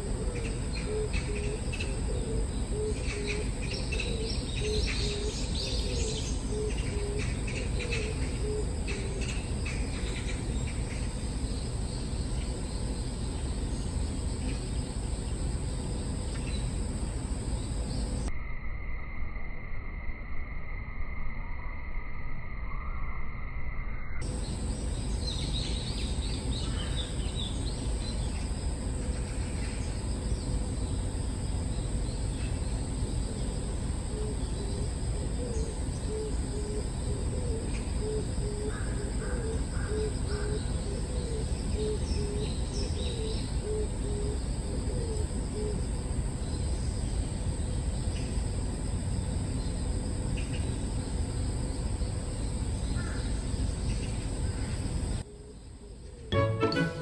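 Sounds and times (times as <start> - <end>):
bird hooting call: 0.0 - 9.4, 34.1 - 45.8
high insect-like whine: 0.0 - 56.6.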